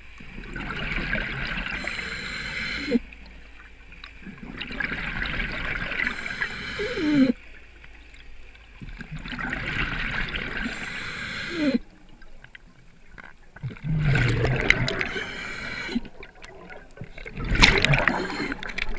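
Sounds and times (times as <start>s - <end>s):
diver exhaling bubbles underwater: 8.9s - 11.8s, 13.6s - 18.9s.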